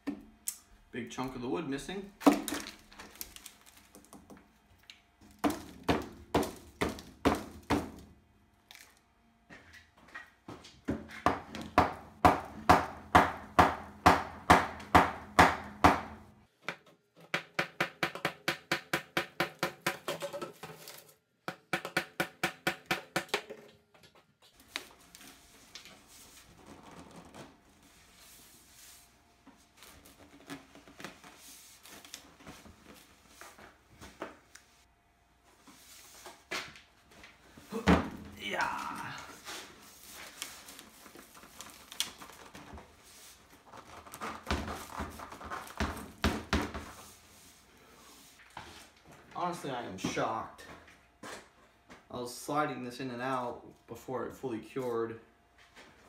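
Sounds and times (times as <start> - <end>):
hammer striking wood: 11.3 - 16.2, 17.3 - 20.1, 21.5 - 23.5.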